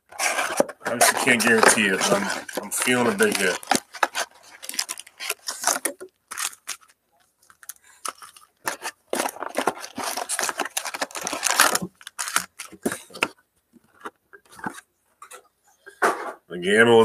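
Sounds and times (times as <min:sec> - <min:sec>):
plastic crinkling: 0:00.0 - 0:14.8
plastic wrapping tearing: 0:00.1 - 0:13.3.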